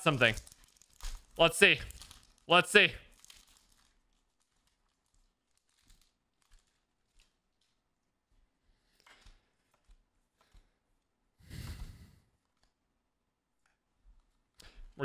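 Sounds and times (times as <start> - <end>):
trading cards rustling: 0.0 - 10.9.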